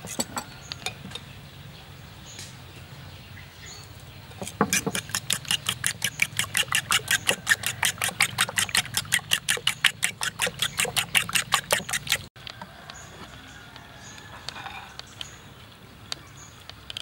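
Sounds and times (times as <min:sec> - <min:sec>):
spoon beating eggs in a bowl: 0:04.4 - 0:12.3.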